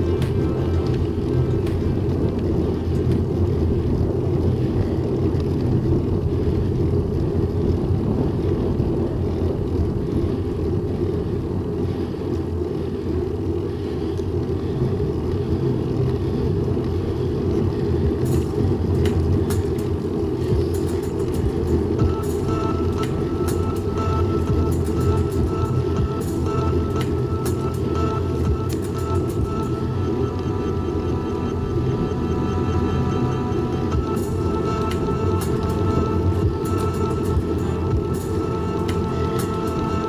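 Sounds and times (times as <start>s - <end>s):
bicycle road noise: 0.0s - 40.0s
wind rumble on microphone: 0.0s - 40.0s.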